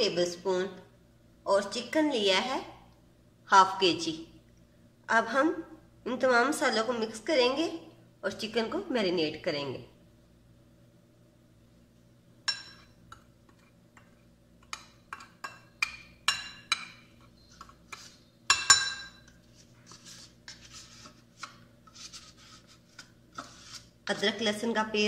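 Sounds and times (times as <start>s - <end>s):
metal spoon clinking on ceramic: 12.5s - 12.9s, 14.6s - 17.0s, 18.5s - 19.4s
spoon scraping: 12.5s - 24.6s.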